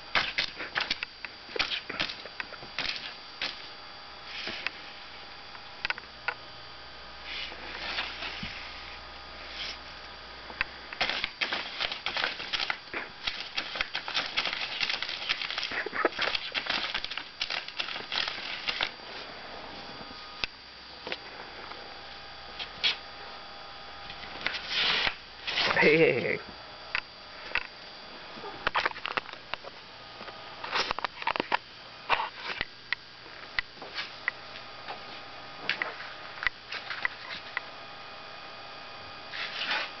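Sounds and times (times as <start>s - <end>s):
cat clawing at paper poster: 2.8s - 3.6s, 11.0s - 19.0s.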